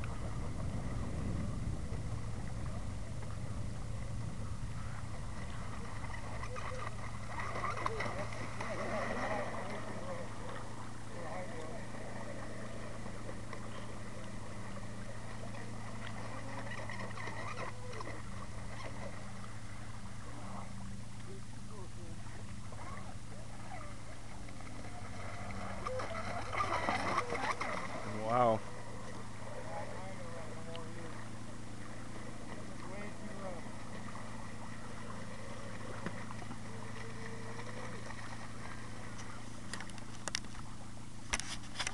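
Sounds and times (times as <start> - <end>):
light wind noise: 0.0 - 41.9
model boat motor whining: 0.0 - 41.9
steady low hum: 0.0 - 41.9.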